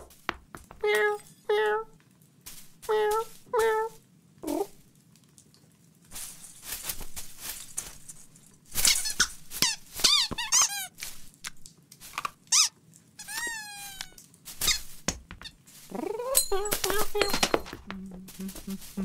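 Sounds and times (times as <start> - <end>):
knocks: 0.0 - 0.9
branches rustling: 6.1 - 12.2
short high squeaks: 8.8 - 11.0, 12.5 - 14.9.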